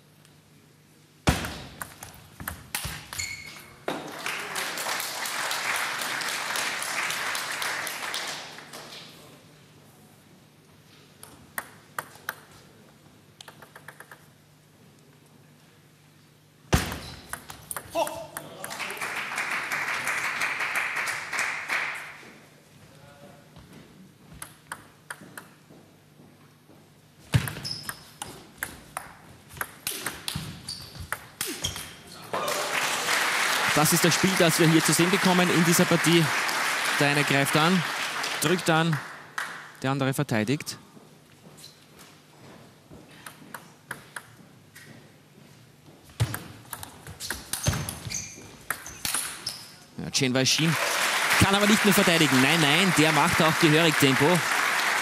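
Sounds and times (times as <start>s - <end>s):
table tennis ball clicking: 1.8s - 2.9s, 11.2s - 12.5s, 13.4s - 14.3s, 24.4s - 25.6s, 43.3s - 44.4s
applause: 4.0s - 9.1s, 18.7s - 22.3s, 32.4s - 39.8s, 50.4s - 55.0s.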